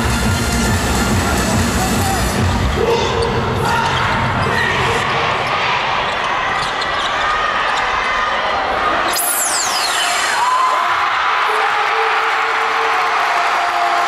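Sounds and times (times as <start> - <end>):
arena crowd noise: 0.0 - 14.0
high-pitched falling sweep: 9.1 - 10.8.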